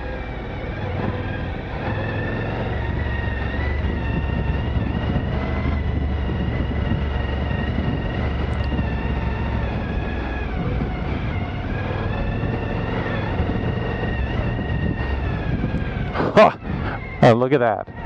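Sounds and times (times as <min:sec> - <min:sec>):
deep rumble from riding: 0:00.0 - 0:18.0
motorcycle engine running: 0:00.0 - 0:18.0.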